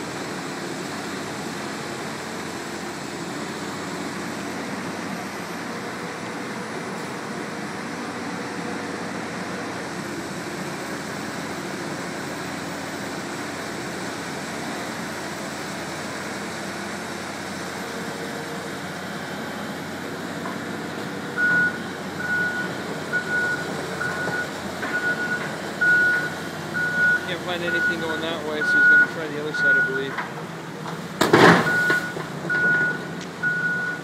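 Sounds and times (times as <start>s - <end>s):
diesel engine running: 0.0s - 34.0s
travel alarm beeping: 21.4s - 30.1s, 31.6s - 34.0s.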